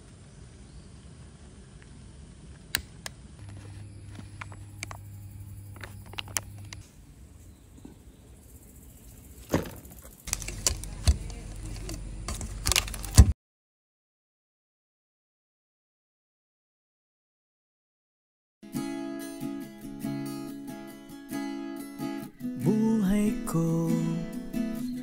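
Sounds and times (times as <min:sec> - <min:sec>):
low steady hum: 0:00.0 - 0:09.0, 0:10.2 - 0:13.3.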